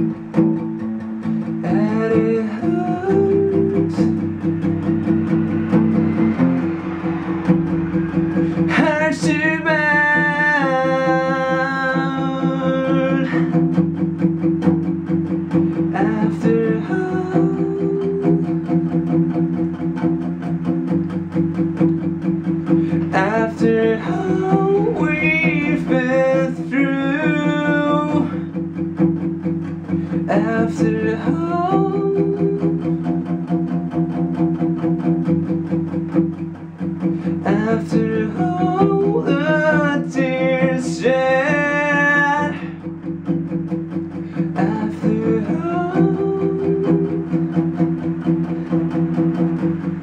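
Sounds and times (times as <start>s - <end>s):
acoustic guitar: 0.0s - 50.0s
man singing: 1.4s - 4.5s, 8.5s - 13.8s, 15.8s - 19.1s, 22.9s - 28.6s, 30.1s - 33.4s, 37.2s - 42.9s, 44.4s - 47.7s.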